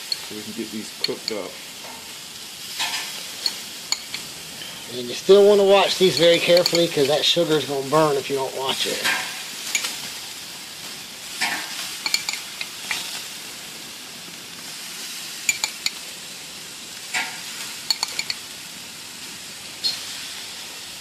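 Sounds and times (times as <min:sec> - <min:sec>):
metal utensil clinking ceramic bowl: 0:00.0 - 0:00.3, 0:01.0 - 0:01.5, 0:03.4 - 0:04.3, 0:06.0 - 0:07.2, 0:09.7 - 0:10.0, 0:12.0 - 0:13.0, 0:15.5 - 0:16.0, 0:17.9 - 0:18.4
meat sizzling on grill: 0:00.0 - 0:21.0.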